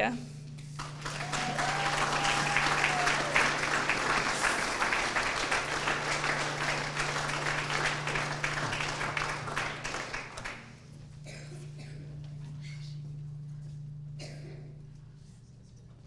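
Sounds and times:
low hum: 0.0 - 16.0
audience applauding: 0.8 - 10.8
high cheer: 0.9 - 10.2.

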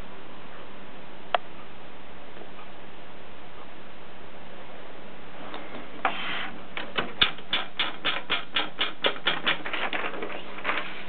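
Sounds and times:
typewriter keys clacking: 6.8 - 10.8.

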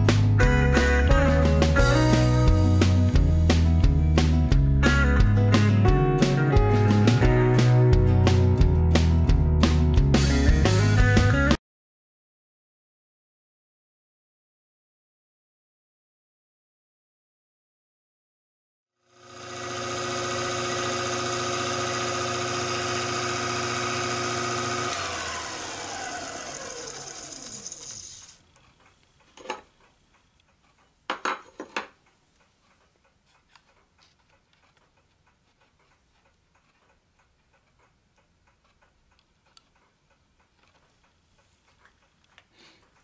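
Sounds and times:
lathe motor hum and whine: 19.1 - 28.3.

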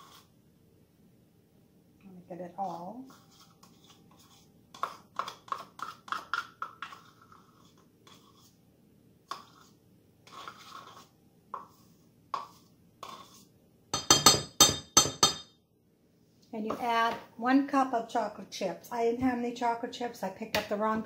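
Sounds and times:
utensil scraping plastic cup: 2.7 - 8.5, 10.3 - 11.1.

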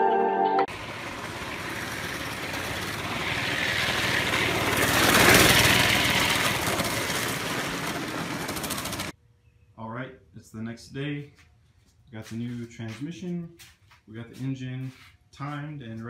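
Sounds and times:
small engine passing by: 0.7 - 9.2.

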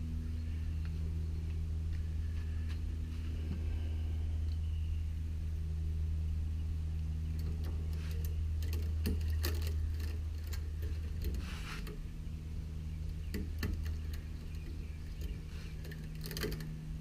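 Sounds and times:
steady low hum: 0.0 - 17.0
steel wires clicking: 7.0 - 12.1, 13.0 - 17.0.

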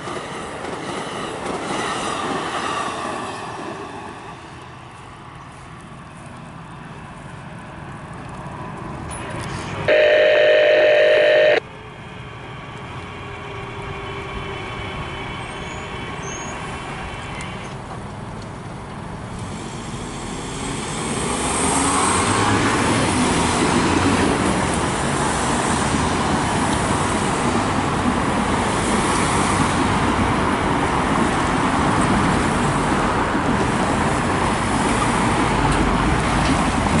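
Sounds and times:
train passing: 0.0 - 37.0
train horn blast: 9.9 - 11.6.

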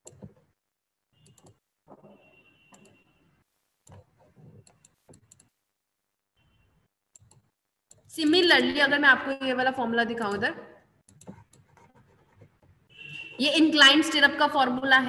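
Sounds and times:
computer mouse clicking: 0.0 - 0.4, 1.2 - 1.6, 2.7 - 3.0, 3.8 - 5.5, 7.1 - 8.1, 11.0 - 12.7.

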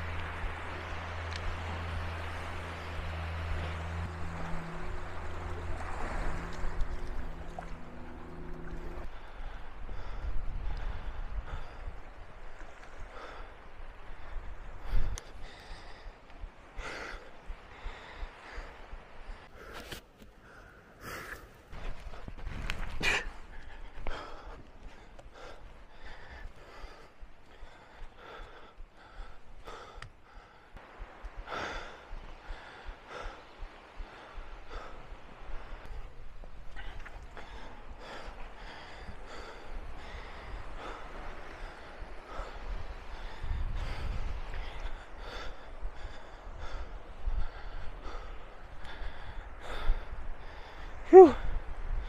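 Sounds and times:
wind rumbling on microphone: 0.0 - 52.0
person breathing hard: 13.1 - 51.7
man panting: 20.4 - 30.8, 36.7 - 51.7.

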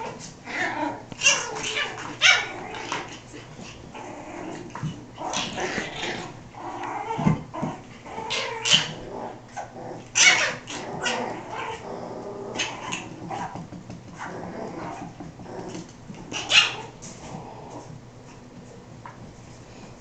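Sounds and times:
puppies growling: 0.0 - 18.5
puppies yipping and barking: 8.2 - 9.0, 9.6 - 11.8, 16.3 - 17.0.

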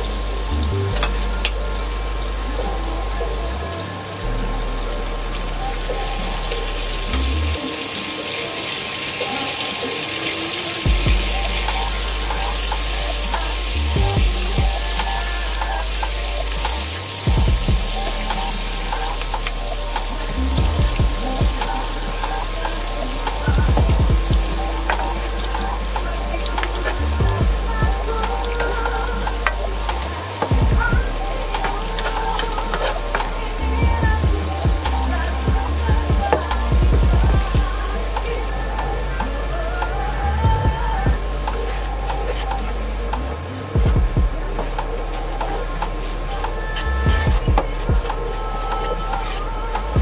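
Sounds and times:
food sizzling in a pan: 3.8 - 36.7, 44.6 - 47.0
water running from tap: 5.1 - 50.0
low thumps: 10.9 - 50.0.

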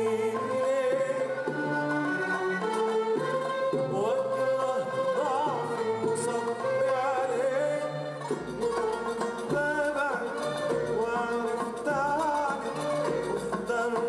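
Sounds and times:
man singing: 0.0 - 2.3, 3.9 - 8.3, 9.4 - 14.0
violins: 0.0 - 14.0.

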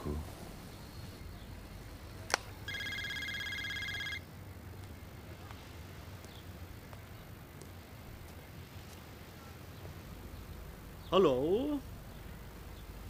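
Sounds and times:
phone ringing trill: 2.7 - 4.2.

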